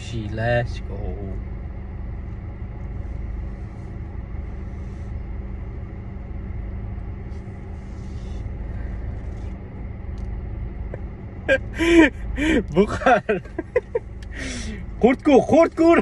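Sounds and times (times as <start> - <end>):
car engine running in cabin: 0.0 - 16.0
faint rustles: 2.3 - 10.3.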